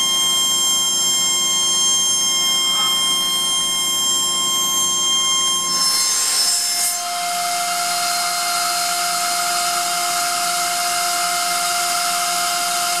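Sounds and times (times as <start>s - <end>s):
air compressor whine: 0.0s - 13.0s.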